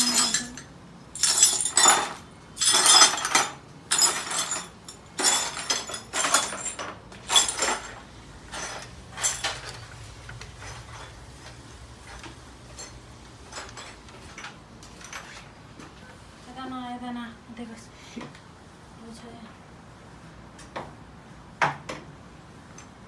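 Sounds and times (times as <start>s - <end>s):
broom sweeping broken glass: 0.0s - 0.6s, 1.2s - 14.0s
low steady hum: 0.0s - 21.5s.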